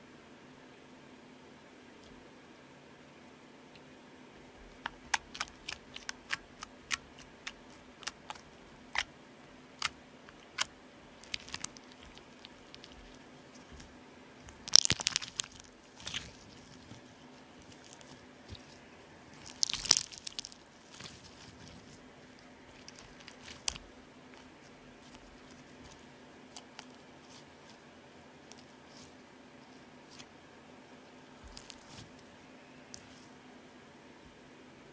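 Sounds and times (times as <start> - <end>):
slime clicking and popping: 9.8 - 13.0, 14.5 - 16.4, 19.4 - 21.1
slime crackling when squeezed: 9.8 - 13.2, 14.5 - 17.0, 19.4 - 21.9, 22.7 - 23.8.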